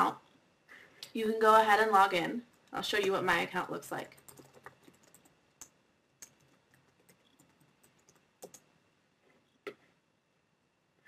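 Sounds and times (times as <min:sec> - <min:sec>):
keystrokes on computer keyboard: 0:04.1 - 0:08.7.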